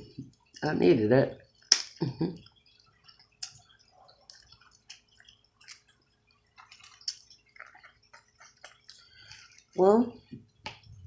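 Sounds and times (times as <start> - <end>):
wet mouth eating sounds: 1.6 - 9.8.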